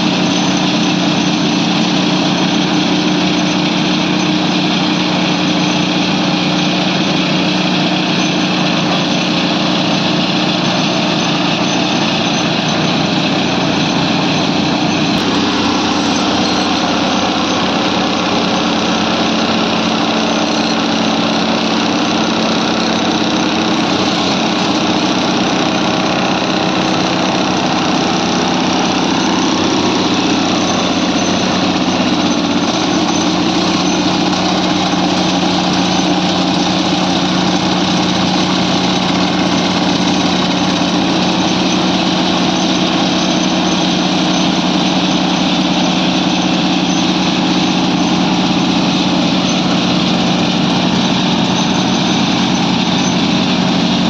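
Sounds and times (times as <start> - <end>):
track machine drone: 0.0 - 54.0.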